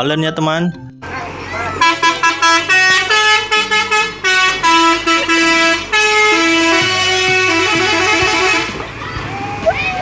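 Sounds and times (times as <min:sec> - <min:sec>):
melodic air horn playing a tune: 0:01.8 - 0:08.8.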